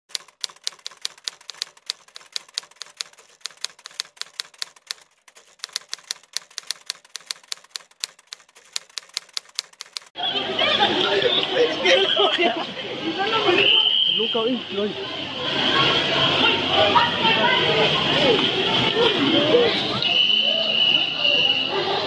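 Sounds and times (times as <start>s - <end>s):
typewriter key clicks: 0.1s - 10.1s.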